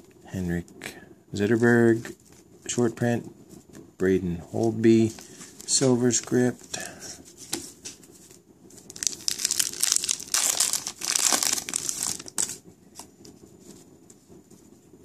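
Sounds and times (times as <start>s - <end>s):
cards rustling: 4.6s - 13.8s
wrapper tearing and crinkling: 8.8s - 13.1s.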